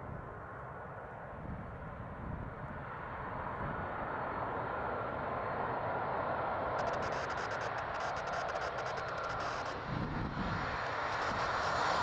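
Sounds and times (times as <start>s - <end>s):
wind rumbling on microphone: 1.2s - 4.2s, 5.8s - 12.0s
jet engines whining: 6.8s - 12.0s.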